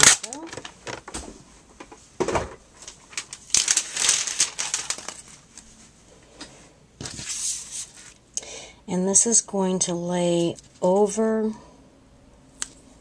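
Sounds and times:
paper crinkling and rustling: 2.7s - 5.9s, 7.0s - 8.2s.

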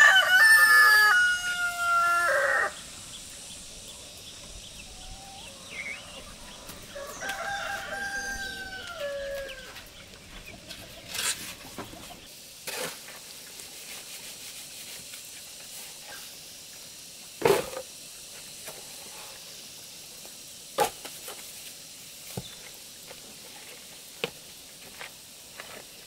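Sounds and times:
shovel scraping wet cement: 11.1s - 11.7s, 12.6s - 15.1s.

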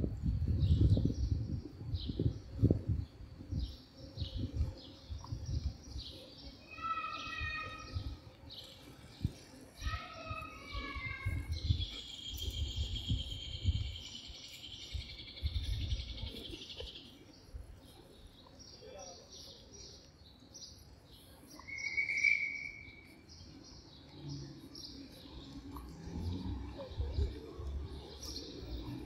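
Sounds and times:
clear whistled note: 21.7s - 22.9s.

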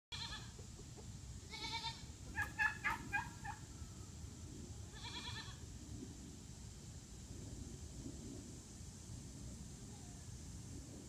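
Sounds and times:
poultry calling: 0.1s - 0.6s, 1.5s - 3.9s, 4.9s - 5.6s
goats bleating: 1.5s - 2.0s.

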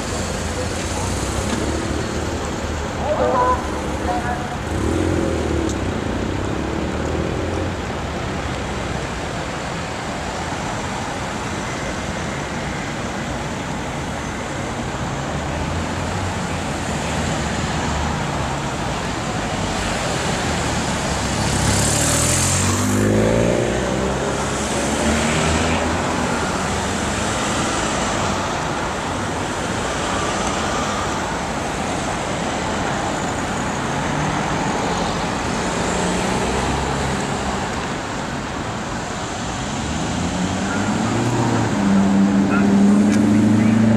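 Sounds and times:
cars driving past: 0.0s - 43.9s
vehicle accelerating past: 21.4s - 28.3s, 39.7s - 43.9s.

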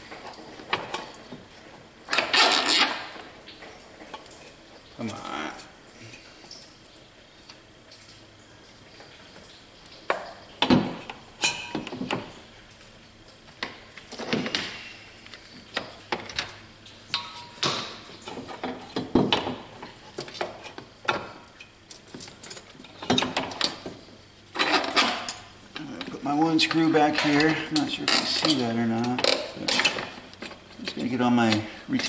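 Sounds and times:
hand tools clinking on metal: 24.6s - 32.0s.

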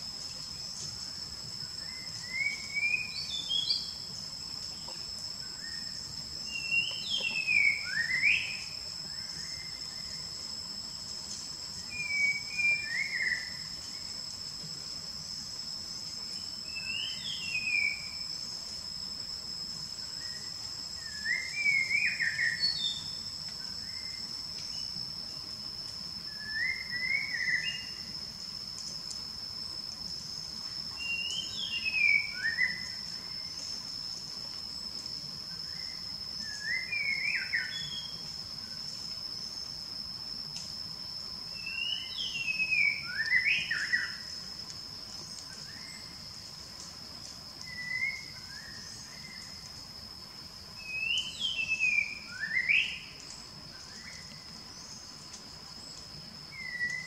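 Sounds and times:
high-pitched insect drone: 0.0s - 57.0s
bird whistling song: 1.8s - 4.0s, 6.4s - 8.7s, 11.9s - 13.6s, 16.7s - 18.2s, 21.0s - 23.2s, 26.4s - 28.0s, 31.0s - 33.0s, 36.4s - 38.2s, 41.6s - 44.2s, 47.6s - 48.8s, 50.8s - 53.1s, 56.5s - 57.0s.

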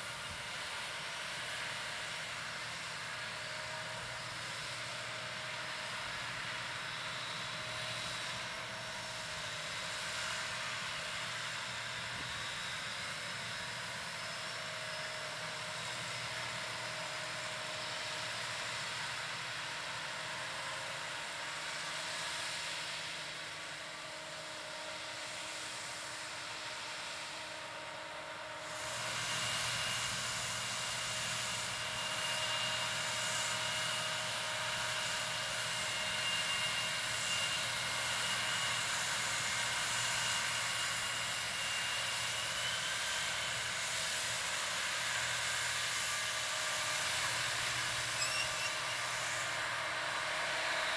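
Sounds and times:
steady whine: 0.0s - 50.9s.

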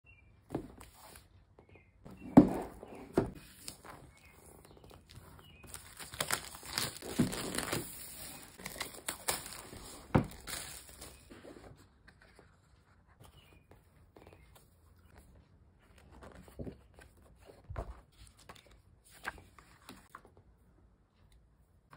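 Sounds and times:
plastic wrap tearing and crinkling: 5.6s - 11.3s.

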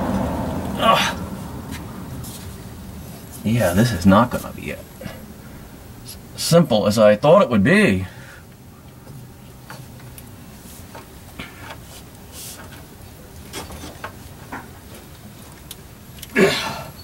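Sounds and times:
person grunting: 0.8s - 1.3s, 16.4s - 16.9s.

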